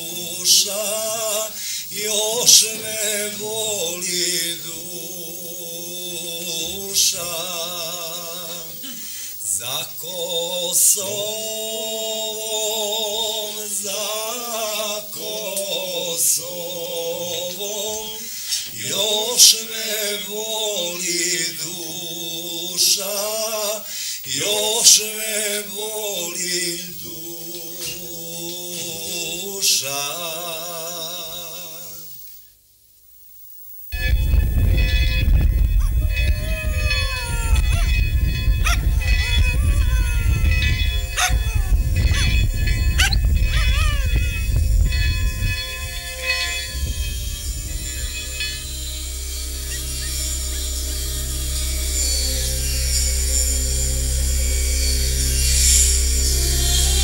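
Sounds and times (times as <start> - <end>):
man singing unaccompanied: 0.0 - 32.2.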